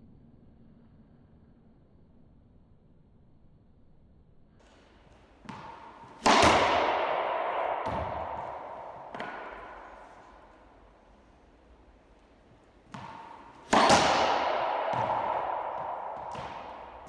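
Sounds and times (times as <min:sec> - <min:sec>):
racquet hitting ball: 0:04.6 - 0:17.0
ball bouncing on wooden floor: 0:05.4 - 0:10.9, 0:12.2 - 0:17.0.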